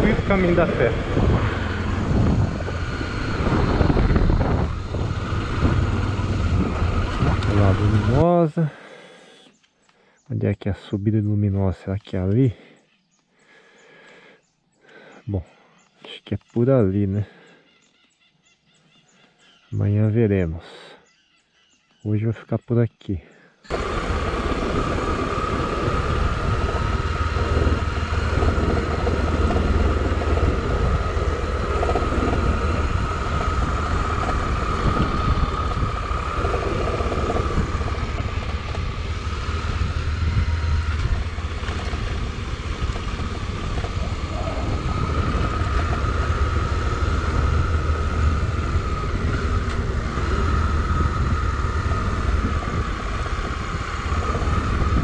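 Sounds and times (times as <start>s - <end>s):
wind rushing over microphone: 0.0s - 8.2s, 23.7s - 55.0s
motorcycle engine drone: 0.0s - 9.6s, 23.6s - 55.0s.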